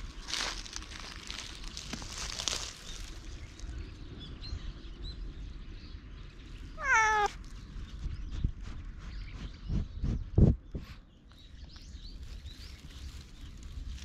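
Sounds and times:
cat meowing: 0:06.8 - 0:07.4.

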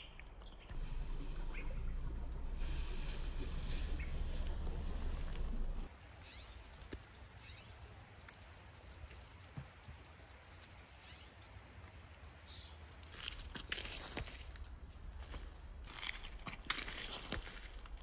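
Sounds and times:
footsteps crunching dry leaves: 0:13.0 - 0:18.0.

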